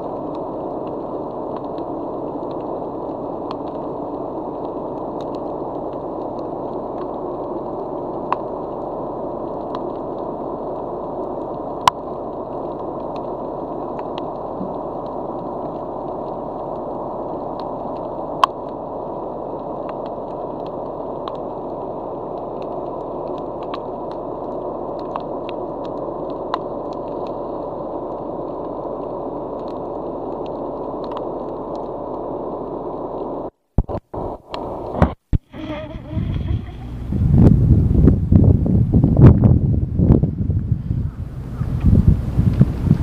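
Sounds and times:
muffled underwater hiss: 0:00.0 - 0:39.1, 0:40.2 - 0:43.0
faint clicks: 0:04.5 - 0:07.2, 0:22.3 - 0:27.4, 0:29.6 - 0:32.2.

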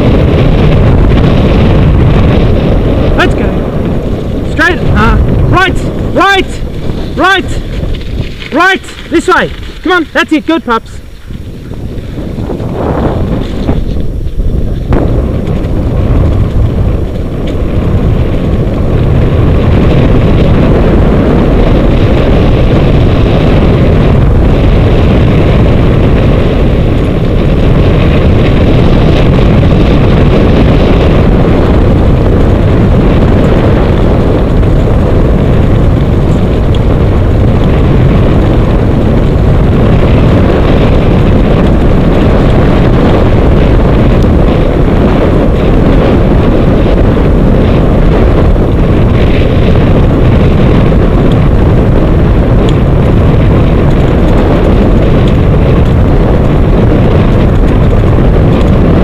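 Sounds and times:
rig rolling on dirt track: 0:00.0 - 0:59.0
wind buffeting microphone: 0:00.0 - 0:59.0.

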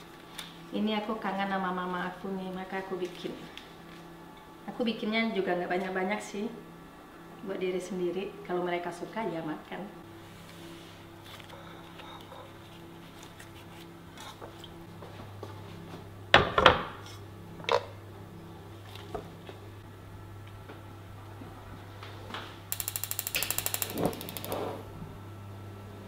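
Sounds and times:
gas igniter clicking: 0:22.7 - 0:24.6.

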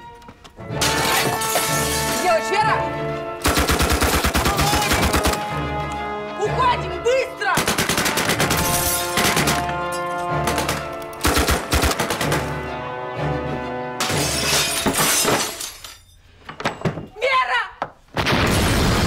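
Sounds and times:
dramatic orchestral music: 0:00.0 - 0:15.0
glass breaking: 0:00.8 - 0:02.4, 0:08.6 - 0:09.3, 0:14.0 - 0:17.2
submachine gun fire: 0:03.4 - 0:05.4.

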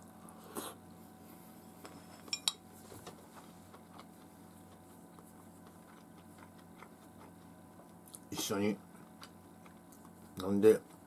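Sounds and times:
chopsticks clinking on ceramic plate: 0:02.2 - 0:02.6.

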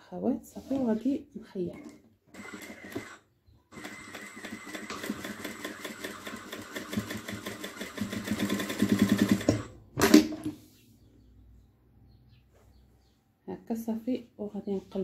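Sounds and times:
sewing machine stitching: 0:01.8 - 0:10.4.

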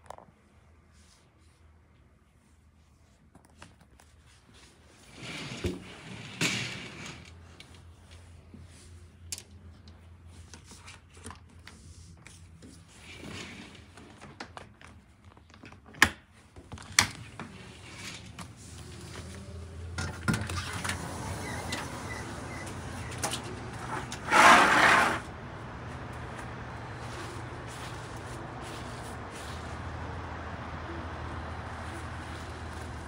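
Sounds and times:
traffic hum: 0:05.5 - 0:15.6, 0:16.4 - 0:33.0
sliding door clicks: 0:19.9 - 0:25.4.

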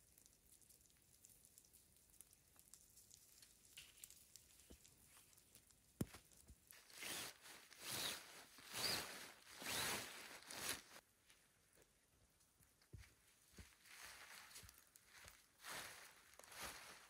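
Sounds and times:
tent fabric swishing and rustling: 0:06.8 - 0:11.0, 0:13.6 - 0:17.0.

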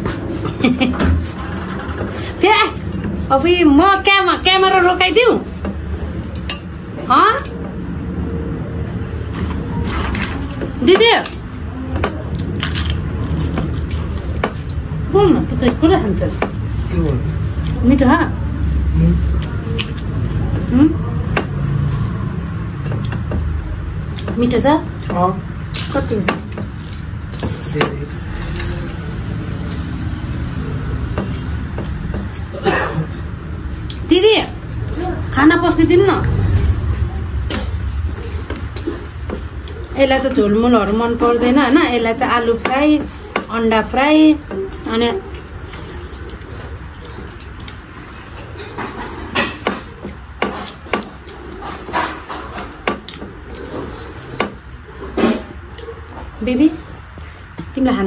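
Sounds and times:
hands mixing food on metal plates: 0:00.0 - 0:07.9, 0:08.8 - 0:58.0
sharp clicks and crunches: 0:12.0 - 0:14.8
steady low rumble: 0:28.0 - 0:41.2
chewing: 0:45.3 - 0:49.2.

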